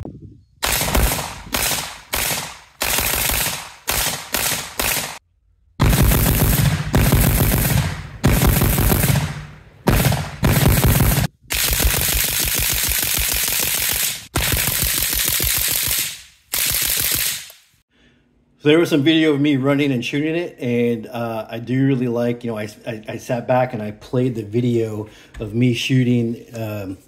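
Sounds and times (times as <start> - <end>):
rifle firing in bursts: 0.6 - 5.2, 5.8 - 17.5.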